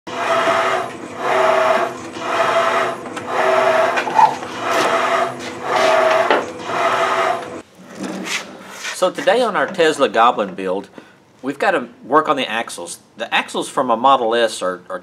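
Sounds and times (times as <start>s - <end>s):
cutter whine: 0.1s - 7.6s
machine tool cutting steel: 0.1s - 7.6s.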